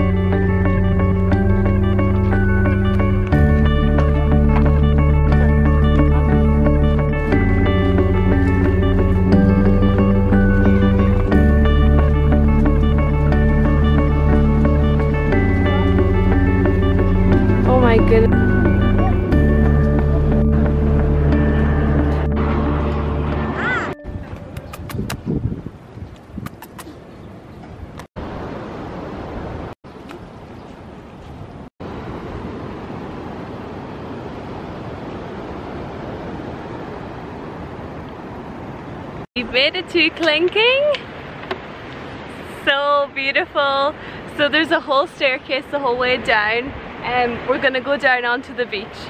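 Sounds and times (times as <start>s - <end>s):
low bass note: 0.0s - 24.3s
wind noise on microphone: 20.9s - 29.7s.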